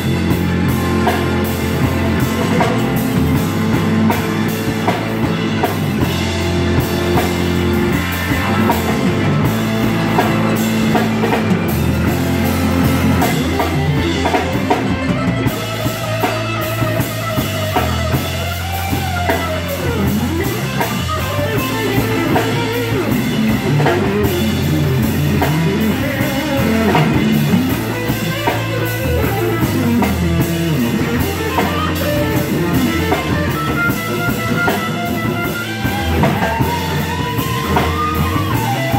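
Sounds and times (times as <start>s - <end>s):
drum kit: 0.0s - 38.9s
electric bass: 0.0s - 38.9s
electric guitar lead: 0.0s - 38.9s.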